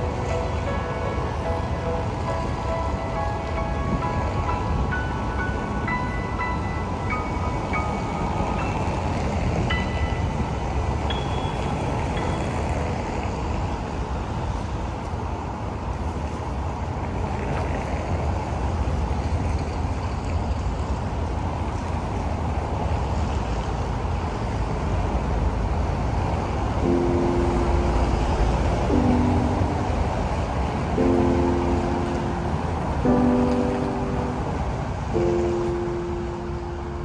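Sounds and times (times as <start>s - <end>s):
held musical tones: 0.0s - 13.9s, 26.8s - 37.0s
traffic passing: 0.0s - 37.0s.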